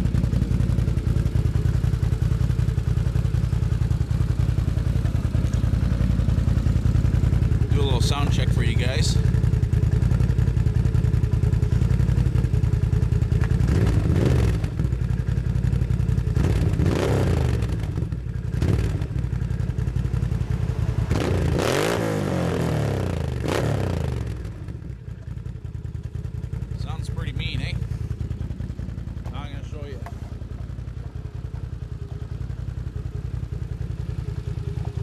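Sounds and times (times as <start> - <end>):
engine idling with throttle blips: 0.0 - 35.0.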